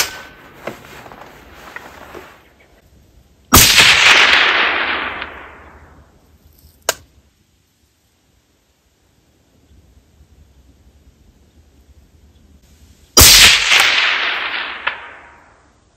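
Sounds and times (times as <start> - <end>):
rifle shot: 3.5 - 6.1, 13.2 - 15.7.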